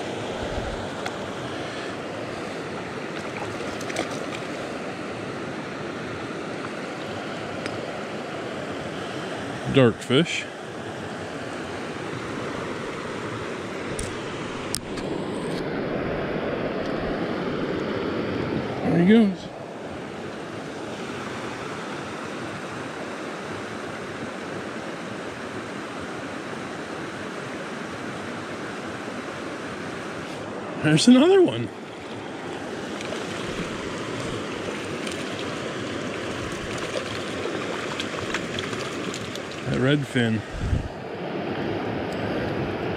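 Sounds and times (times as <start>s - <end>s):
stream water flowing: 0.0s - 42.9s.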